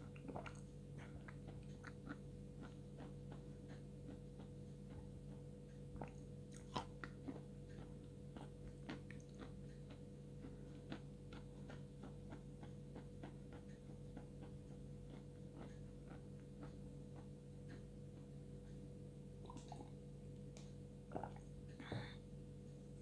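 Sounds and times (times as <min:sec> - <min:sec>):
crunchy chewing: 0:00.0 - 0:18.8.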